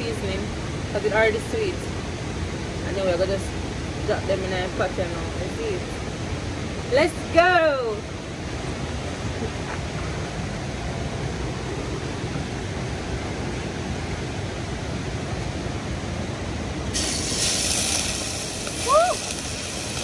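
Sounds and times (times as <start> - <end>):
river water flowing: 0.0 - 20.0
bright hiss: 16.9 - 20.0.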